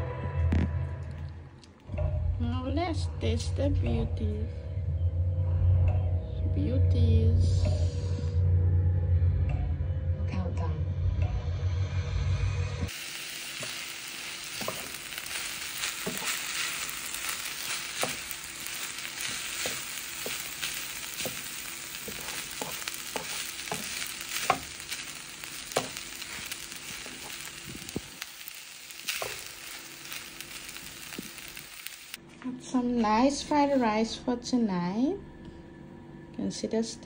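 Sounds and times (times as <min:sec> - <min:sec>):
rice sizzling in a hot pan: 0:12.9 - 0:32.2.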